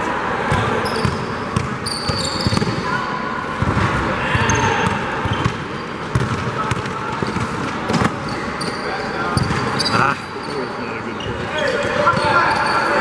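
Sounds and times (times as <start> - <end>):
basketball bouncing: 0.5 - 2.7, 4.8 - 8.2
sneaker squeaks: 0.5 - 13.0.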